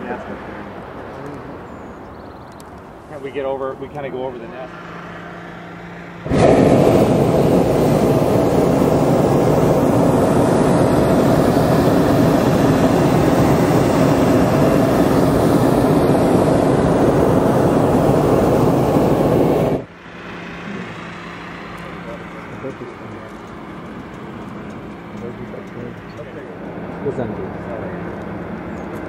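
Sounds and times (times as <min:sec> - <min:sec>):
propane burner roaring: 0:02.5 - 0:29.0.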